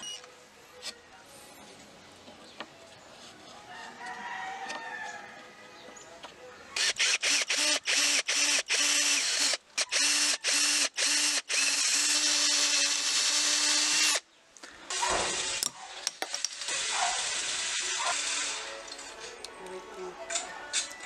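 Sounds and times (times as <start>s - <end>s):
handheld power tool running: 6.8s - 14.2s.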